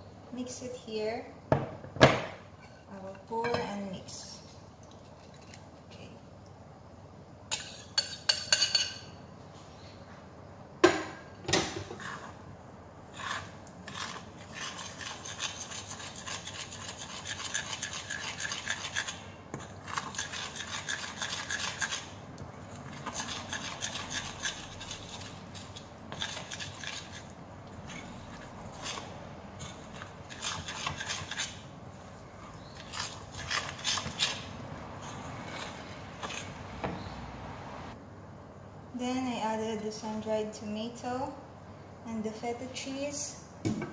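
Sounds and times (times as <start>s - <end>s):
fork scraping glass bowl: 11.9s - 12.4s, 13.1s - 22.2s, 22.8s - 36.6s.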